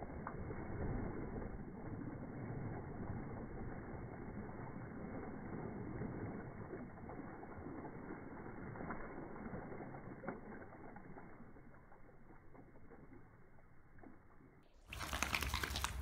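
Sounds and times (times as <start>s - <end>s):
water splashing in paddling pool: 0.0s - 16.0s
dog shaking water off: 14.9s - 16.0s.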